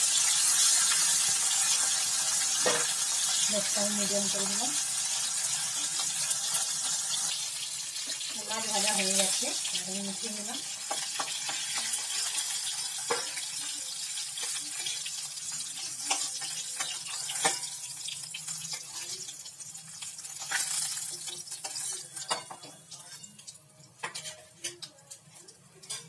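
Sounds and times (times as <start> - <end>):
fish sizzling in hot oil: 0.0 - 26.0
metal spatula scraping pan: 24.0 - 24.7.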